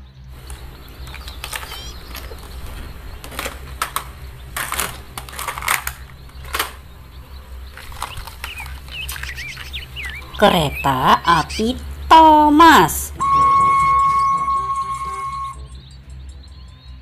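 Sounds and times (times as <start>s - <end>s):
plastic toy cars clattering: 0.3s - 10.5s.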